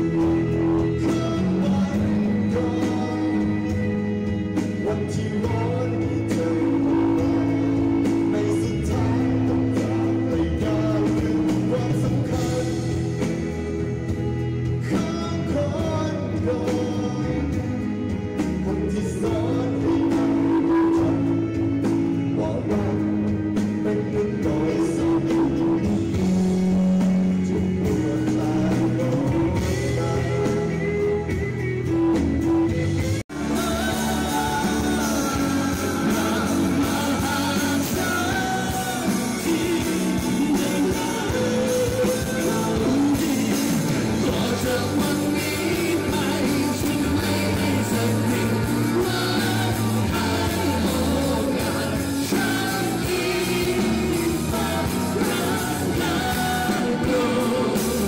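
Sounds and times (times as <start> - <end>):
several singers singing together: 0.0 - 13.4, 33.3 - 58.0
man singing lead: 0.0 - 58.0
rock band playing: 0.0 - 58.0.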